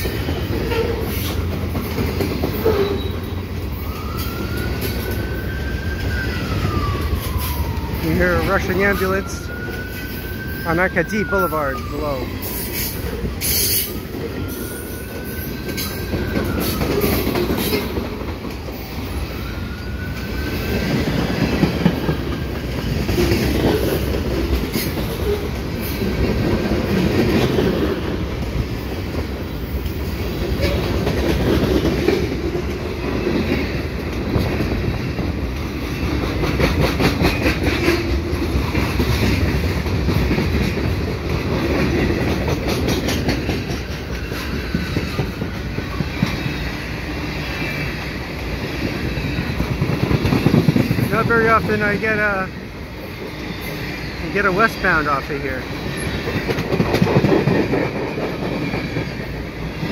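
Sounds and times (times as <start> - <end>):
wheels clicking over rail joints: 0.0 - 8.0, 19.8 - 51.9, 55.6 - 59.9
freight train cars rumbling: 0.0 - 59.9.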